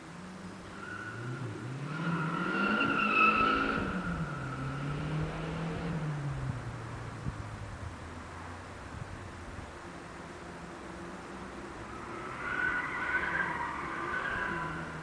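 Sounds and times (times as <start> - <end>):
car engine accelerating hard: 0.4 - 7.4
tyre squeal: 0.7 - 4.8, 12.2 - 15.0.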